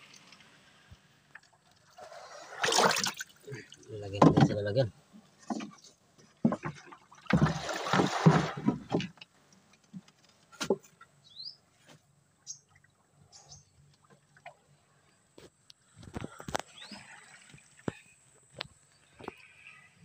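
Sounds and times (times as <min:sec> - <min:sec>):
water sloshing: 0:00.0 - 0:11.0, 0:16.2 - 0:19.9
bird chirps: 0:11.2 - 0:11.6, 0:12.4 - 0:12.7.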